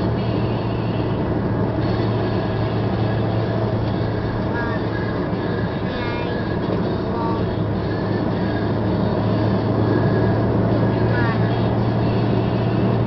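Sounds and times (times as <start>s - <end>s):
car engine and tyre noise: 0.0s - 13.0s
constant low hum: 0.0s - 13.0s.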